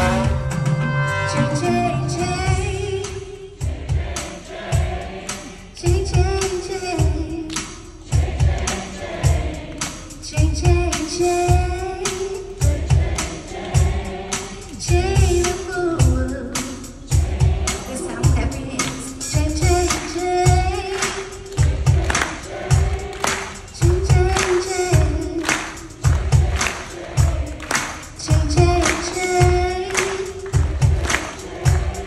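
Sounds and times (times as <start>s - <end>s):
kick-drum beat: 0.0s - 0.8s, 3.6s - 5.2s, 5.8s - 7.5s, 8.1s - 9.7s, 12.6s - 14.2s, 17.1s - 32.0s
soul band playing: 0.0s - 3.5s, 14.9s - 32.0s
woman singing: 1.3s - 3.6s, 5.8s - 7.8s, 10.2s - 13.4s, 14.7s - 17.1s, 17.9s - 21.6s, 23.8s - 26.0s, 28.2s - 30.6s.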